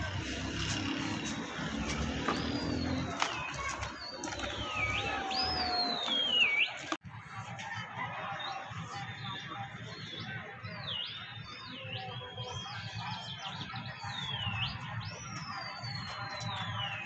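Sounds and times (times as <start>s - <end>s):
bird whistled calls: 4.3s - 6.9s.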